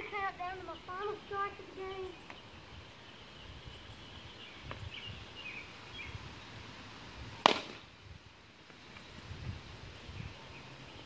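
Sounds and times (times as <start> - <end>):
plastic bat hitting ball: 7.4 - 7.8.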